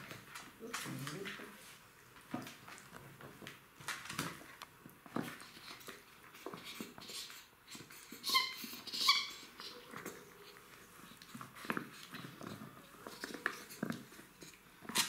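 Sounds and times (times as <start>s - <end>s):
puppies scuffling: 0.0s - 15.0s
puppy high-pitched squeals: 6.6s - 10.7s.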